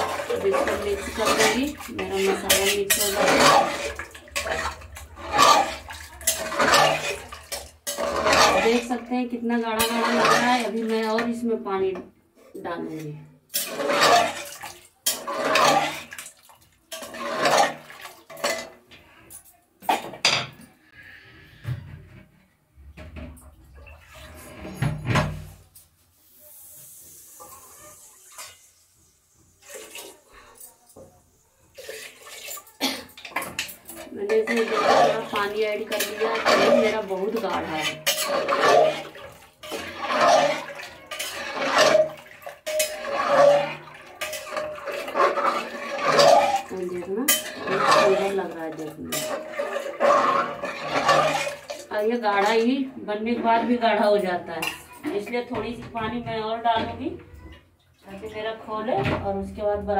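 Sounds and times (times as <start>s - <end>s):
metal cookware clanking: 0.0s - 12.0s, 12.8s - 16.3s, 16.9s - 20.7s, 31.8s - 52.6s, 53.2s - 57.0s
spoon stirring and scraping pot: 0.0s - 19.6s, 31.7s - 57.2s.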